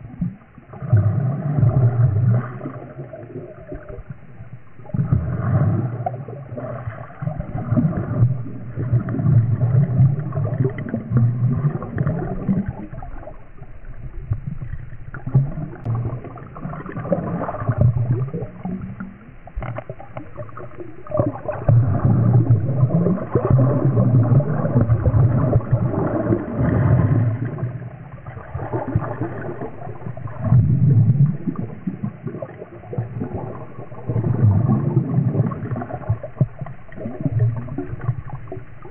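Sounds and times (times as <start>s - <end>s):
underwater gurgling and bubbling: 0.0s - 38.9s
low rumble: 20.8s - 38.9s.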